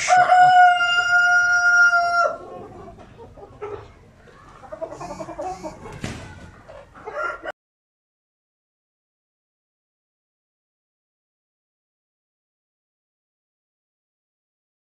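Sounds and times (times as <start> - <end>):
rooster crowing: 0.0 - 2.6, 7.0 - 7.5
hens clucking: 0.0 - 7.5.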